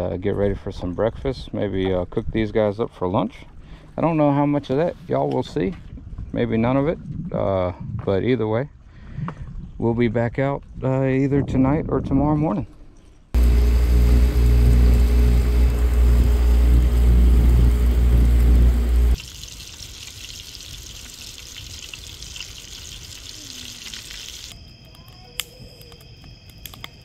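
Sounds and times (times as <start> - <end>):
outboard motor running: 13.4 - 19.2
sizzling hiss: 13.4 - 24.6
insect chirring: 19.2 - 27.0.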